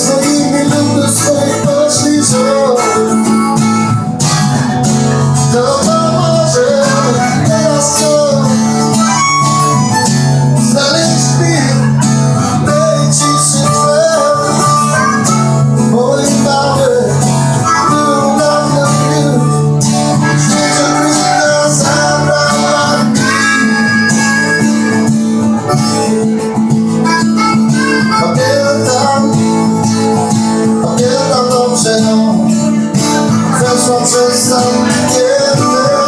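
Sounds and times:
acoustic guitars strumming chords: 0:00.0 - 0:36.0
harmonica melody: 0:00.0 - 0:36.0.

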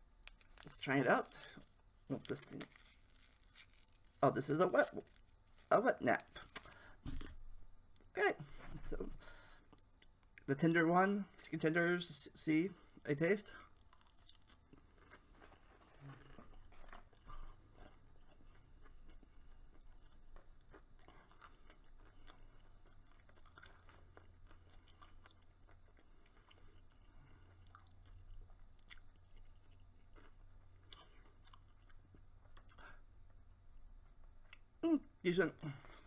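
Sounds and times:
chewing fried chicken: 0:13.6 - 0:34.8.

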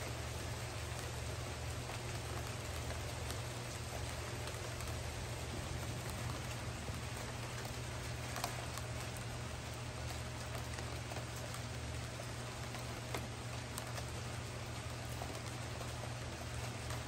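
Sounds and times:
raindrops tapping close by: 0:00.0 - 0:17.0
steady rain hiss: 0:00.0 - 0:17.0
low hum: 0:04.6 - 0:11.6.

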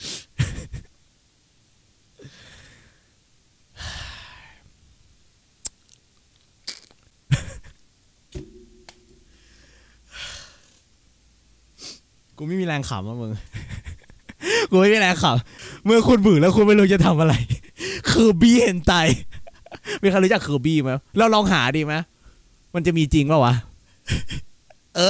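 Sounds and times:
man laughing breathlessly: 0:00.1 - 0:01.0, 0:07.3 - 0:07.8, 0:13.4 - 0:14.8, 0:17.3 - 0:18.1, 0:19.1 - 0:20.0, 0:24.0 - 0:24.5.

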